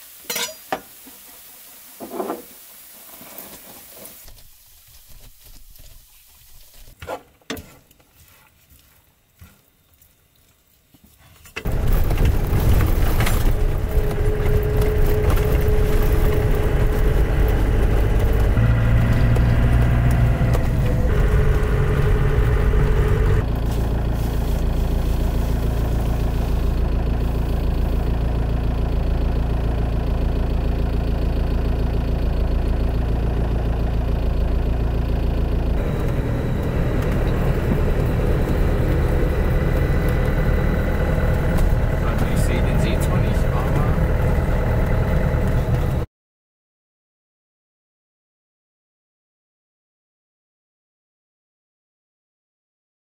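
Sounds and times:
van engine and road noise: 11.6 - 46.1
steady whine: 32.5 - 46.0.

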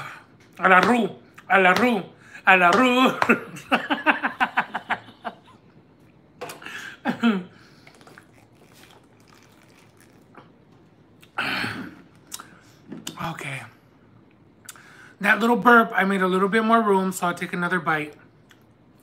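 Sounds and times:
man laughing: 2.9 - 5.7
swallowing from plastic bottle: 7.6 - 10.4.

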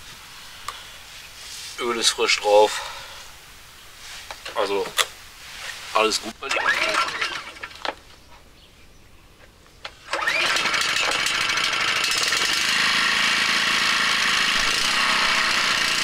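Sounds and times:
generator engine running: 6.5 - 7.8, 10.0 - 16.0.

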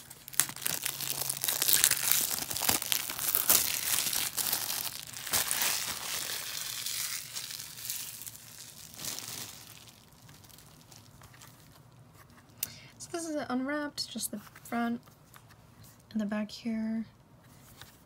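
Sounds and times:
plastic shrink wrap crinkling: 0.0 - 12.3.

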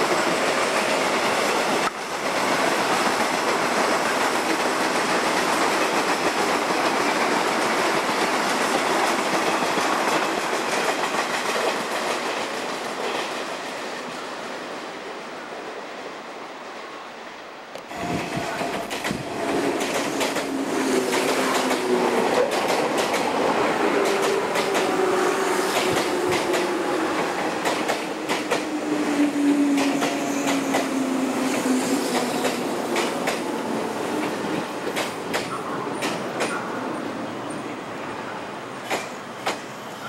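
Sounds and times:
train wheels clacking over rail joints: 0.0 - 13.7, 18.0 - 28.8, 29.6 - 33.5, 34.2 - 36.6, 38.8 - 39.7.

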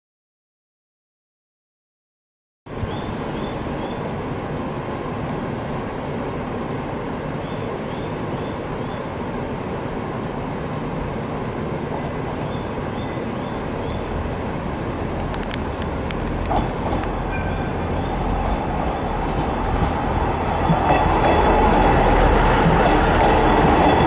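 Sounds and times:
train engine and wheel rumble: 2.7 - 24.0
high wheel squeals: 4.3 - 5.0.

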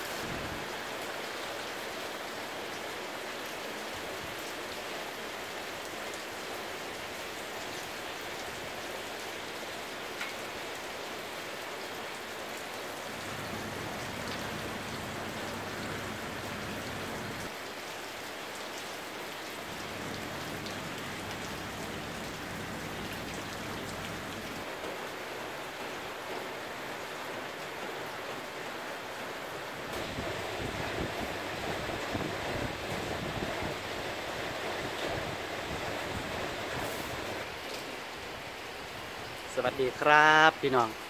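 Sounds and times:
steady rain pattering: 0.0 - 41.0.

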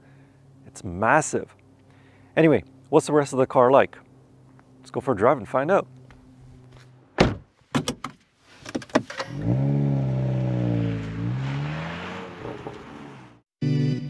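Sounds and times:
car door shutting: 7.2 - 9.6
car engine starting and revving: 9.1 - 13.4.

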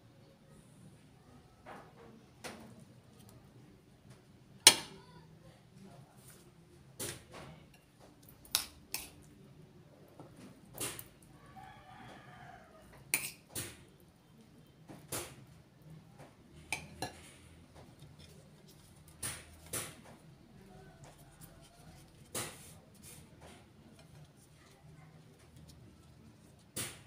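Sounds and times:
faint rooster crowing: 11.2 - 13.1, 20.5 - 22.2.

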